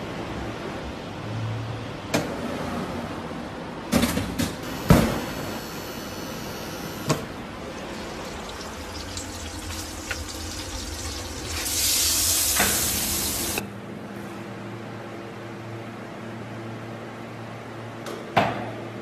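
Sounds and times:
oven fan humming: 0:02.2 - 0:14.4
loud hiss: 0:11.6 - 0:13.6.

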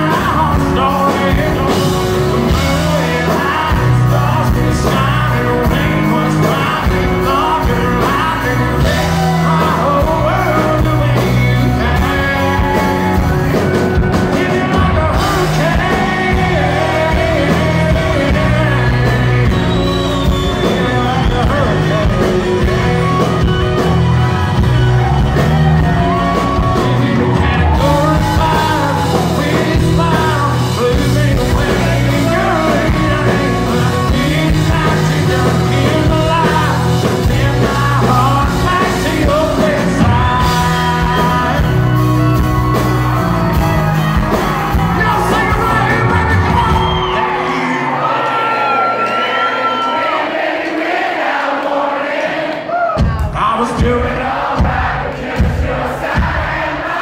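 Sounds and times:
man singing: 0:00.0 - 0:23.9, 0:25.7 - 0:42.8, 0:43.4 - 0:48.0, 0:53.2 - 0:54.8
country band playing: 0:00.0 - 0:57.0.

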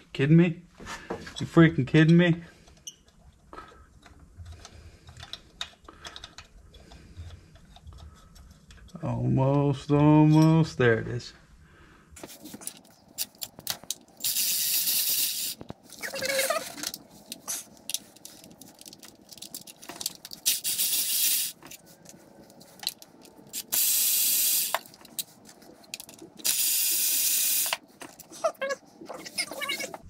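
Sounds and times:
electric ratchet whirring: 0:14.2 - 0:16.9, 0:20.4 - 0:21.6, 0:23.5 - 0:24.9, 0:26.4 - 0:27.8.

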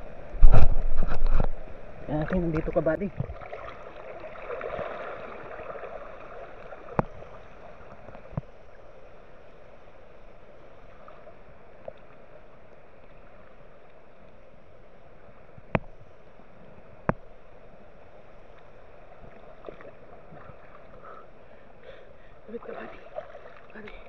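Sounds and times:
fast-flowing river water: 0:00.0 - 0:08.1, 0:19.1 - 0:24.0.

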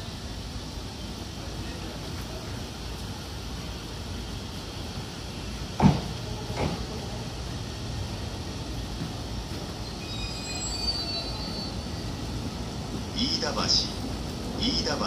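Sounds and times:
train rolling with rumble: 0:00.0 - 0:15.0
high brake squeal: 0:09.7 - 0:12.1.

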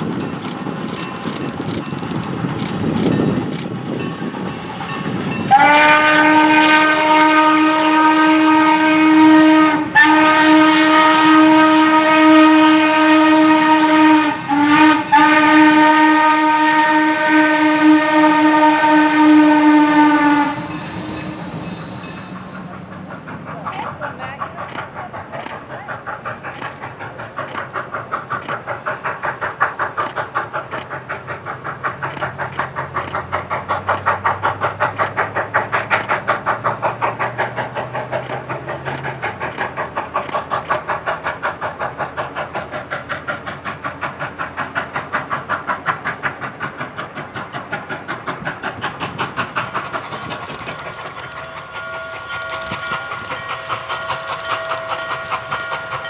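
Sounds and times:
steam locomotive chuffing: 0:00.0 - 0:56.0
steam locomotive chime whistle: 0:04.5 - 0:22.7
sharp clicks: 0:23.7 - 0:23.9, 0:26.5 - 0:27.7, 0:28.4 - 0:28.8, 0:30.0 - 0:31.0, 0:32.1 - 0:33.2, 0:33.8 - 0:34.2, 0:34.9 - 0:35.3, 0:35.9 - 0:36.2, 0:38.1 - 0:41.0.

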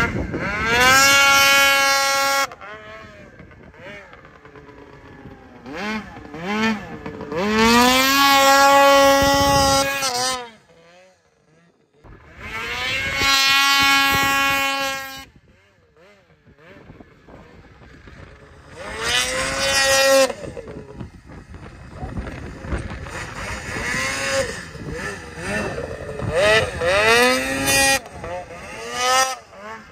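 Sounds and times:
snowmobile engine revving: 0:00.0 - 0:29.9.

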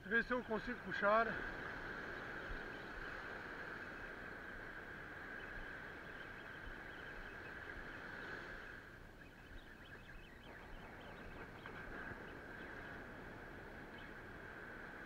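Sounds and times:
surf washing onto beach: 0:00.0 - 0:08.8.

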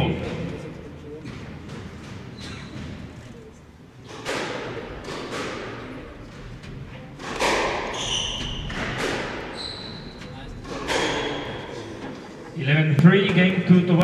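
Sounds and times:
sneakers squeaking on wooden floor: 0:01.2 - 0:04.2, 0:05.1 - 0:12.1
squash ball struck by rackets: 0:04.1 - 0:06.6, 0:07.2 - 0:09.6, 0:10.2 - 0:11.7
ball smacking off walls: 0:07.2 - 0:09.6.

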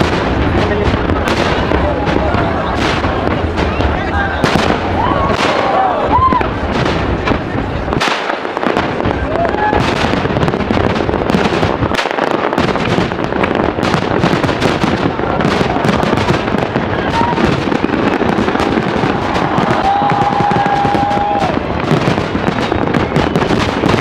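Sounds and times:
fireworks bangs and crackling: 0:00.0 - 0:24.0.

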